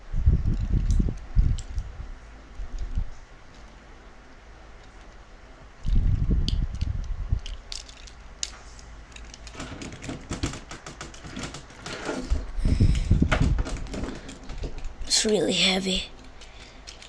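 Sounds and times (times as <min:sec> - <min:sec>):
plastic toy pieces clicking: 0:05.8 - 0:08.5, 0:09.1 - 0:12.0, 0:16.2 - 0:17.0.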